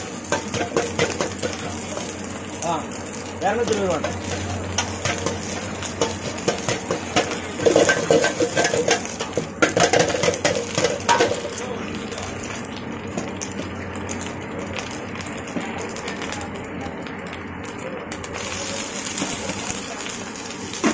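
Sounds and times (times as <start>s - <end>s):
rice sizzling in oil: 0.0s - 20.9s
ladle scraping a wok: 4.0s - 11.6s.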